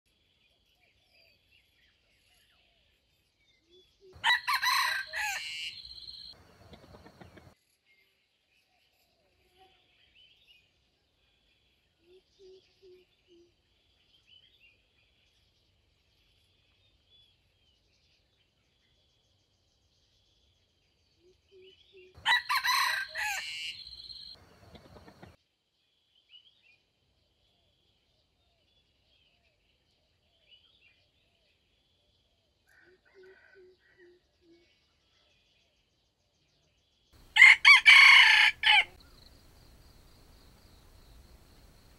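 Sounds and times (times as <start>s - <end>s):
rooster crowing: 4.2s - 6.3s, 22.2s - 25.2s, 37.2s - 39.0s
soft low clucks: 6.4s - 7.6s, 24.4s - 25.4s
faint chirping: 38.8s - 41.9s.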